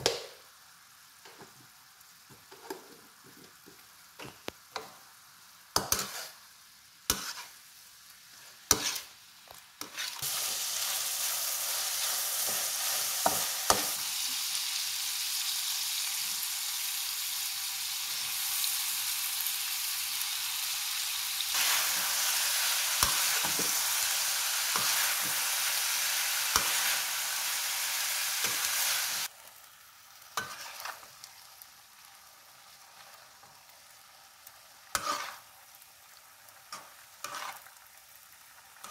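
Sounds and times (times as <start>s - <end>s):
meat and onions sizzling: 0.0s - 38.9s
metal spatula scraping wok: 5.8s - 6.4s, 7.1s - 7.6s, 8.7s - 9.2s, 9.8s - 10.6s, 30.4s - 31.1s, 34.9s - 35.5s, 36.7s - 37.7s.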